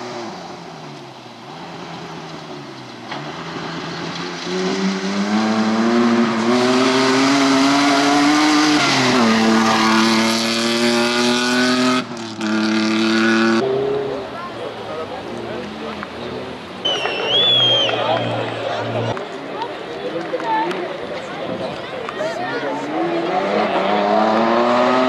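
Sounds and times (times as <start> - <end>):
rally car engine revving: 0.0 - 16.6, 22.7 - 25.0.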